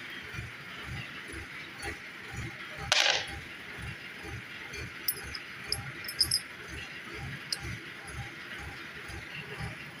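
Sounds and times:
low pulsing hum: 4.9s - 6.4s
metal bolts clinking: 5.0s - 6.5s.

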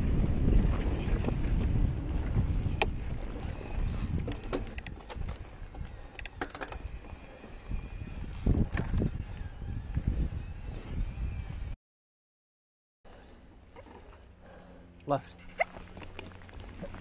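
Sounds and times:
wind on microphone: 0.0s - 11.8s
bike clicks and rattles: 0.3s - 7.6s, 8.2s - 10.1s.

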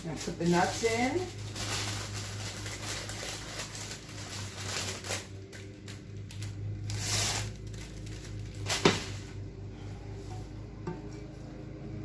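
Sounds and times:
paper crinkling and rustling: 0.0s - 9.3s
steady low hum: 0.0s - 12.0s.

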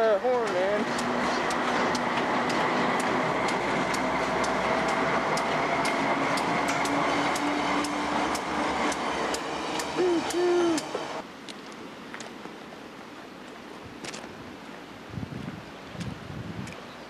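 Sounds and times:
train wheels rushing on rails: 0.0s - 11.2s
faint locomotive engine hum: 0.0s - 11.3s.

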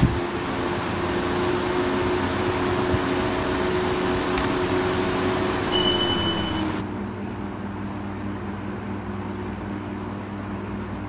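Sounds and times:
fan air rushing with motor hum: 0.0s - 11.0s
short high beep: 5.7s - 6.8s.

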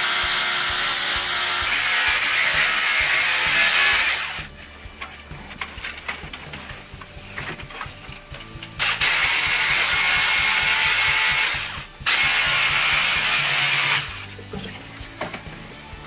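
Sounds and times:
power drill drilling concrete: 0.0s - 4.5s, 8.8s - 14.3s.

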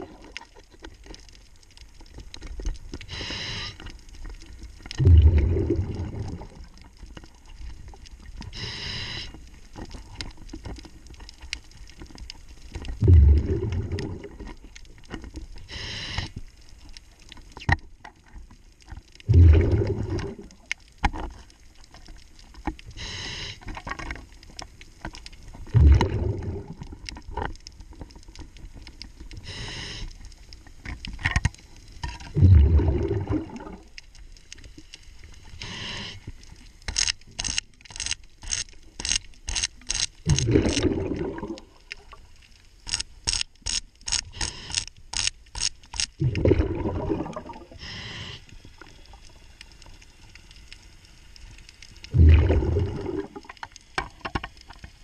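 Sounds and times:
hissing inhalations: 3.0s - 4.0s, 8.5s - 9.5s, 15.6s - 16.4s, 23.0s - 23.8s, 29.4s - 30.2s, 35.5s - 36.4s, 44.3s - 44.9s, 47.7s - 49.1s
regulator bubbling exhalations: 5.0s - 6.8s, 13.0s - 14.5s, 19.2s - 20.7s, 25.7s - 27.0s, 32.3s - 33.9s, 40.2s - 42.1s, 46.2s - 48.4s, 52.1s - 53.5s
sharp clicks of tools on bolt: 42.9s - 46.1s.

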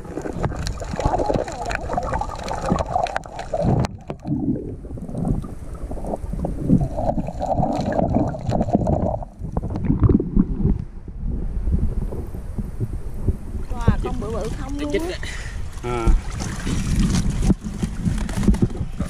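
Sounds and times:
hissing wind and water: 0.0s - 19.0s
muffled underwater rumble: 0.0s - 19.0s.

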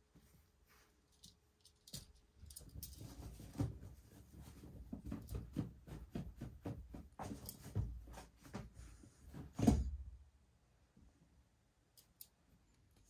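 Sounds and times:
cat thumping and scraping scratcher: 3.0s - 10.0s.

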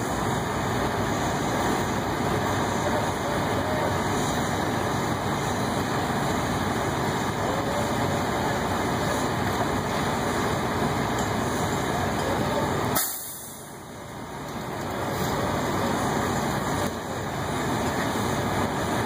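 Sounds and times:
heavy diesel machinery running: 0.0s - 19.0s
short sharp hiss: 12.9s - 13.7s.

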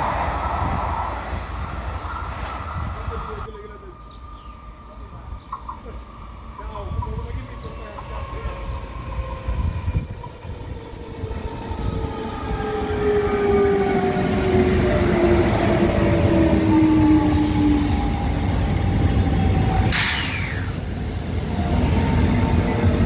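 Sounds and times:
train wheels rumbling on rails: 0.0s - 23.0s
sharp hiss dropping in pitch: 19.9s - 21.0s.

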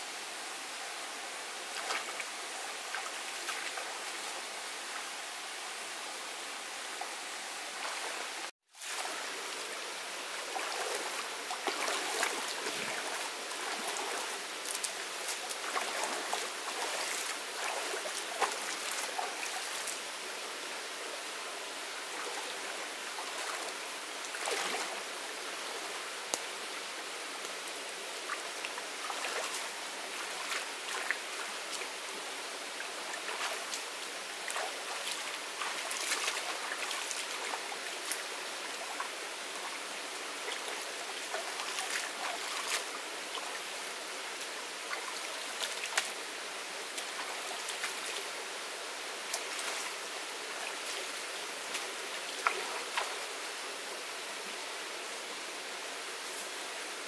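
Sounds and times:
shallow stream running: 0.0s - 57.0s
splashing as person wades: 7.8s - 9.5s, 10.4s - 20.0s, 24.3s - 25.0s, 29.0s - 31.9s, 33.0s - 39.8s, 40.4s - 43.7s.

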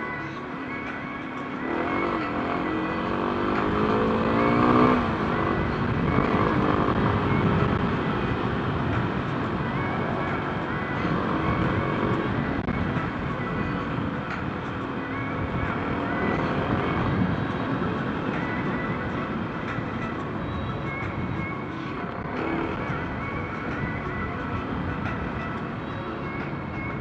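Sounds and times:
car driving noise: 0.0s - 27.0s
car engine revving: 1.6s - 8.9s.

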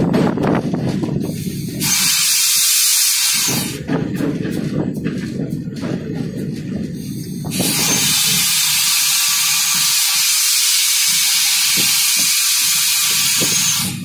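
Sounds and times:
air brake hissing: 1.3s - 3.8s, 7.0s - 14.0s.

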